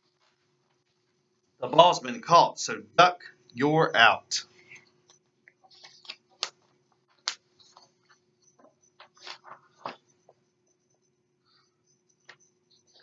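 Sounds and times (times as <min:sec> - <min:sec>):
faint steady hum: 0:00.0 - 0:13.0
book pages rustling: 0:05.6 - 0:10.1.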